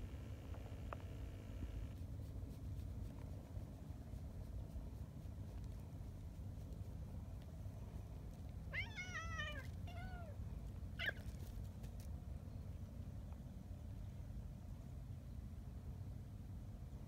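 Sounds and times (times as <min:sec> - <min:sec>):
cat meowing and crying: 0:08.7 - 0:10.4.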